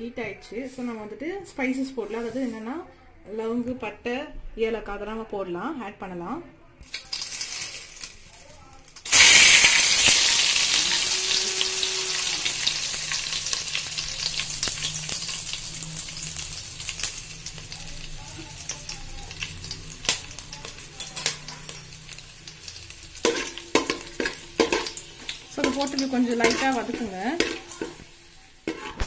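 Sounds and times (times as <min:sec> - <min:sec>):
spices sizzling in oil: 0:06.9 - 0:08.4, 0:09.0 - 0:29.0.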